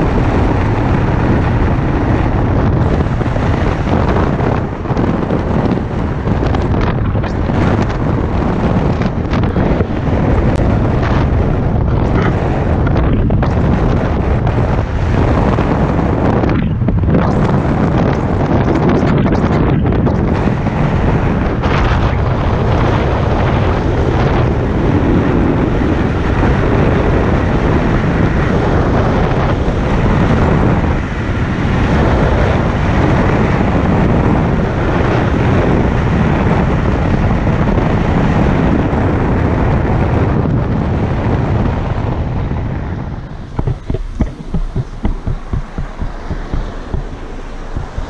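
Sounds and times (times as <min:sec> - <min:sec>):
road noise: 0:00.0 - 0:48.0
wind buffeting microphone: 0:00.0 - 0:48.0
car engine: 0:42.9 - 0:48.0.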